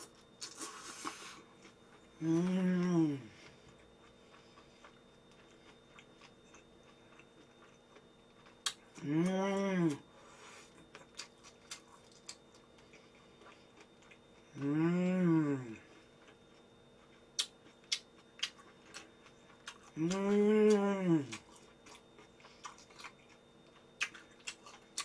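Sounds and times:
woman humming while chewing: 1.4 - 3.9, 8.7 - 10.2, 14.4 - 16.1, 19.7 - 21.5.

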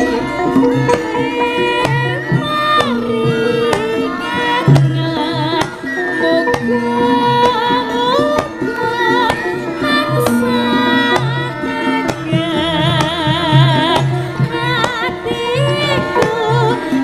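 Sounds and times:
gamelan music: 0.0 - 17.0
hand drum strokes: 0.0 - 17.0
woman singing with vibrato: 0.0 - 17.0.

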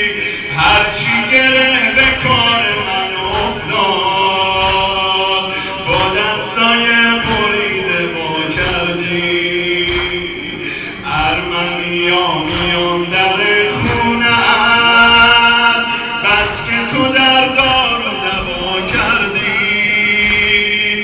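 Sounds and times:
man chanting through loudspeakers: 0.0 - 21.0
hands slapping chests: 3.2 - 6.3, 8.5 - 13.2.

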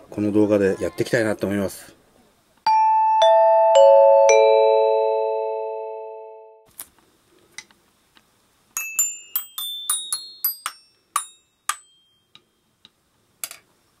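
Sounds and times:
glockenspiel jingle: 2.7 - 6.6, 8.8 - 12.3.

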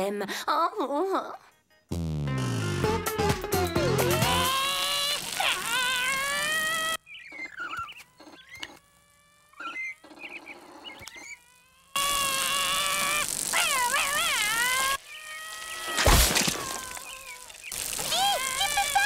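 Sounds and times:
small squeaks and clicks: 4.2 - 12.2, 12.9 - 19.0
cartoon character high-pitched cry: 5.4 - 7.0, 13.6 - 15.6, 18.0 - 19.0.

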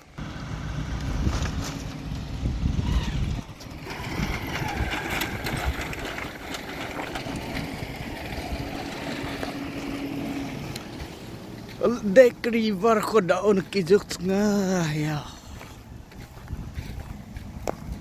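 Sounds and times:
motorcycle engine running slowly: 0.0 - 11.8, 15.6 - 18.0.

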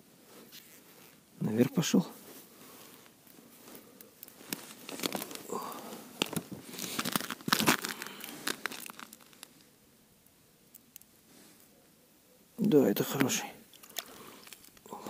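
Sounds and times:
jacket and fishing tackle rustling: 0.2 - 9.8, 13.1 - 15.0.

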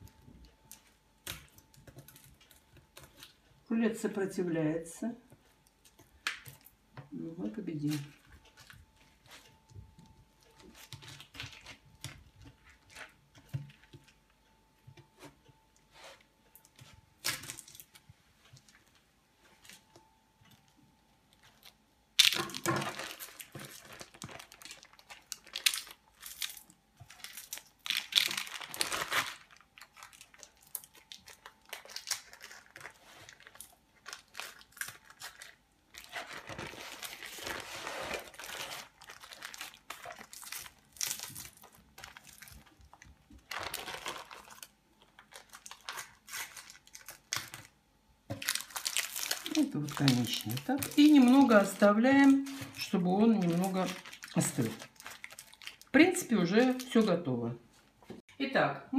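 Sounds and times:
baking paper crinkling and tearing: 10.5 - 13.9, 21.4 - 57.3
paper crackling bursts: 22.8 - 47.7, 48.4 - 57.1
paper rustles: 28.2 - 47.7, 48.3 - 55.8.

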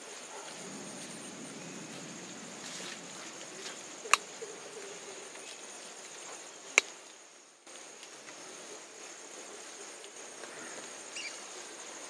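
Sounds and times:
water dripping from leaves: 2.7 - 11.6.

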